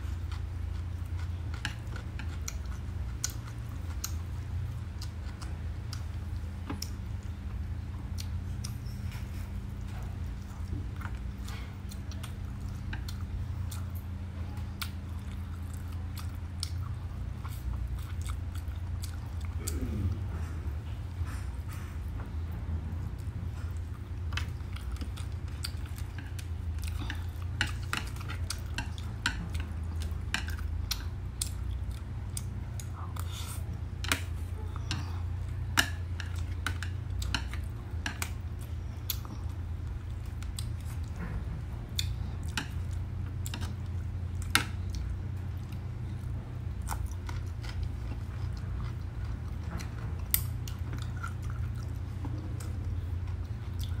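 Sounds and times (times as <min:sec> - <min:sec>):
chewing food: 0:00.0 - 0:54.0
low hum: 0:00.0 - 0:54.0.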